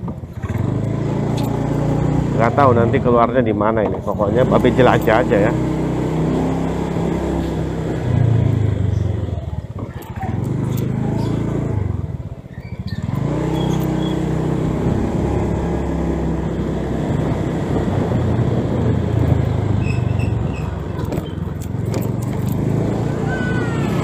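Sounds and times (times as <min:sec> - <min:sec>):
scooter engine running: 0:00.0 - 0:24.0
wind and road noise: 0:00.0 - 0:24.0.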